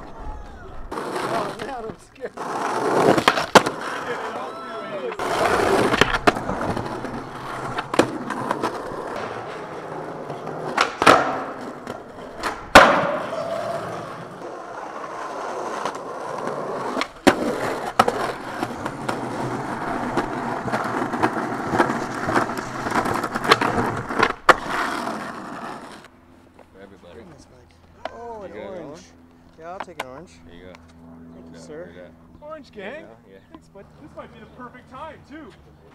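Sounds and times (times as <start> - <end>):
skateboard wheels rolling on concrete: 0.0 - 29.0, 32.4 - 35.9
skateboard clacking on ground: 0.9 - 4.2, 5.1 - 26.7.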